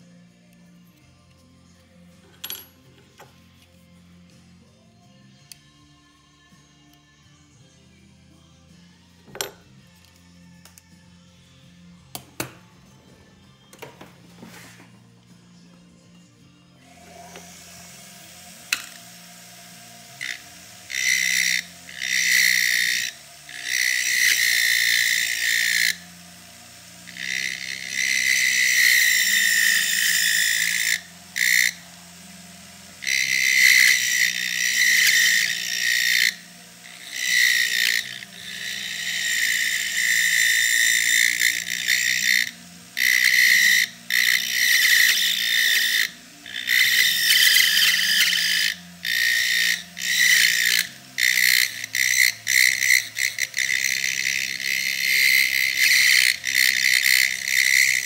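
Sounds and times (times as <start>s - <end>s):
burr grinding metal whine: 0.0s - 58.0s
rotary tool low hum: 14.4s - 58.0s.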